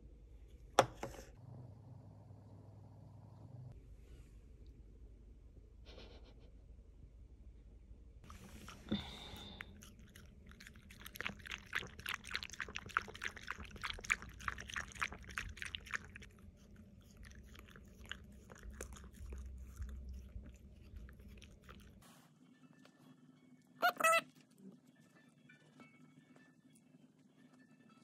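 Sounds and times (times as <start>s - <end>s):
dog lapping from a bowl: 8.3s - 22.0s.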